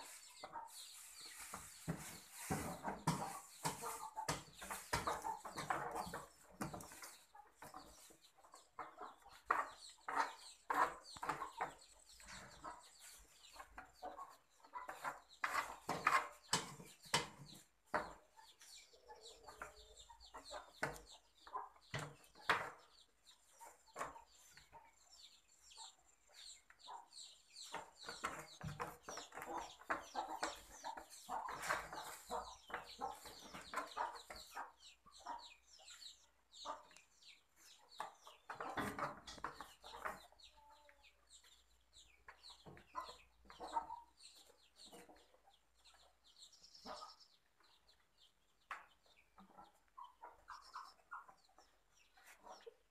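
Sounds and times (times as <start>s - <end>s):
poultry clucking: 0.0s - 52.9s.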